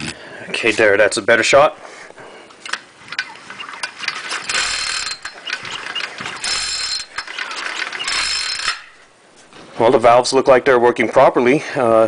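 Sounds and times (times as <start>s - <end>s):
recoil starter cord rasping: 2.7s - 9.1s.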